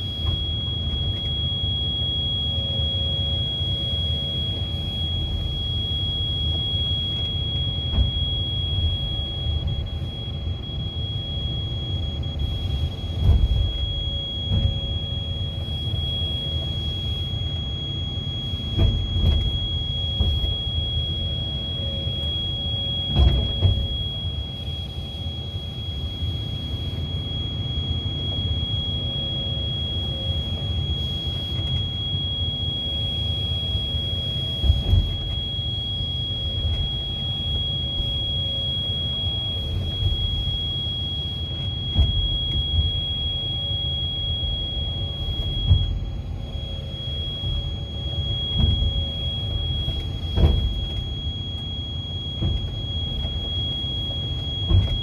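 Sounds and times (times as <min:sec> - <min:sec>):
high-pitched tone: 0:00.0 - 0:55.0.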